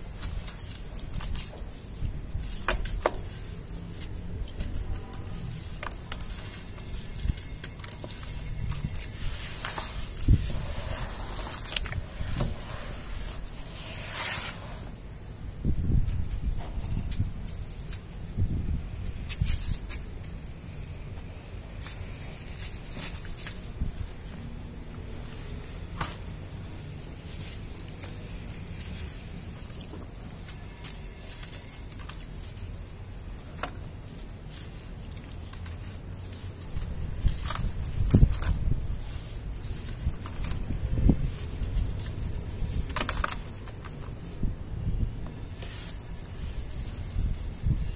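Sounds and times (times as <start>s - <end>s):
wet sand squelching: 5.2s - 14.9s.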